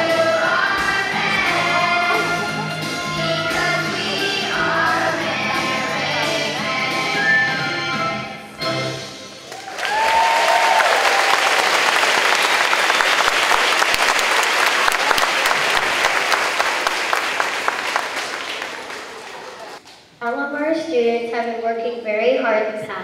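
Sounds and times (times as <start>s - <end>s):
high cheer: 9.4s - 19.8s
audience applauding: 9.4s - 19.9s.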